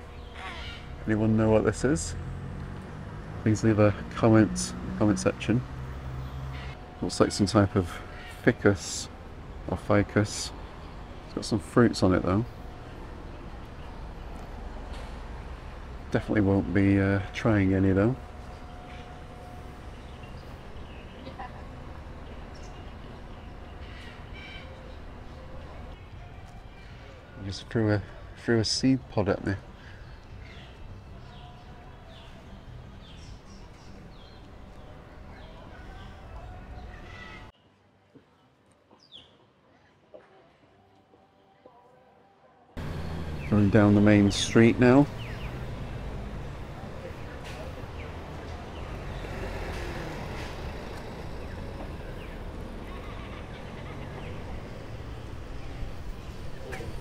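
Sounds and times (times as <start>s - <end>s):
bird chirping: 0.0s - 1.4s, 42.8s - 57.0s
low rumble of traffic: 0.0s - 37.6s, 42.8s - 57.0s
outdoor background noise: 0.0s - 57.0s.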